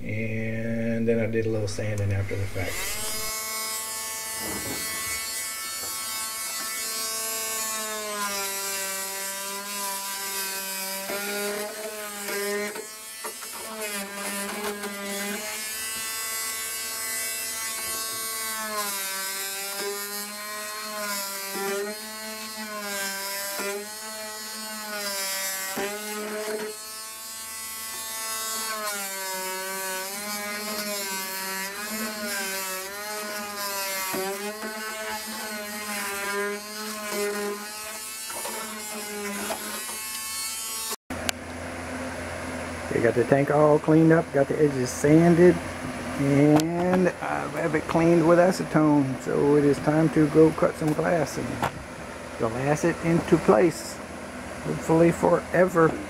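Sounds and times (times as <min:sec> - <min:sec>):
oscillating multi-tool whining: 0:02.6 - 0:41.0.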